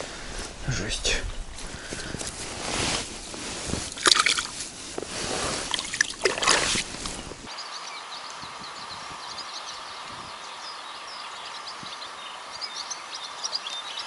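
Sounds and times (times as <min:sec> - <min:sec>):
water sloshing and splashing: 0:03.6 - 0:07.4
small birds chirping: 0:05.6 - 0:14.0.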